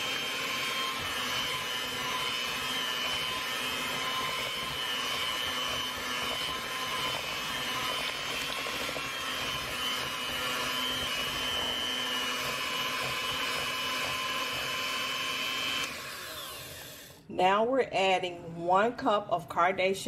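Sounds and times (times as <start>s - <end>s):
electric hand mixer whining: 0.0s - 17.3s.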